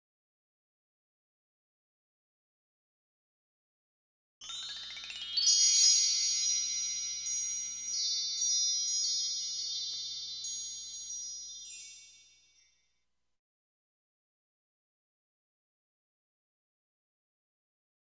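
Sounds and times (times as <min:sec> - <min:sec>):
high shimmering chimes: 0:04.4 - 0:13.0.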